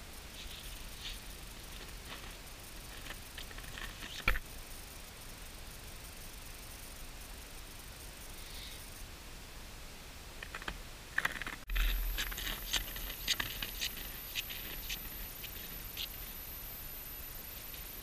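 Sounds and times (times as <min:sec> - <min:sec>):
footsteps crunching in snow: 0:11.7 - 0:16.4.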